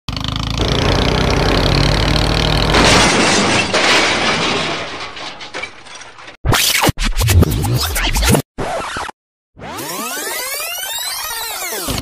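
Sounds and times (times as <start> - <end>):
engine rumble: 0.1 - 3.8
loud crashing and breaking: 0.6 - 6.4.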